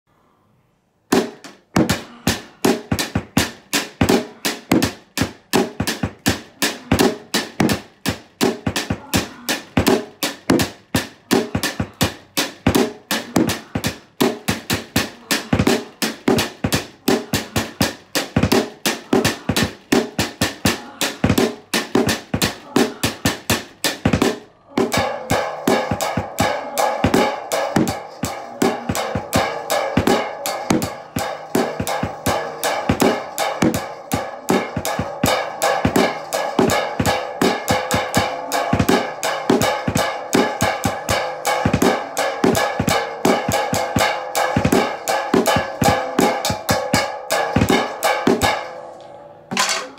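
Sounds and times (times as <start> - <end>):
snare drum and cymbal beat: 2.6 - 9.0, 25.0 - 48.7.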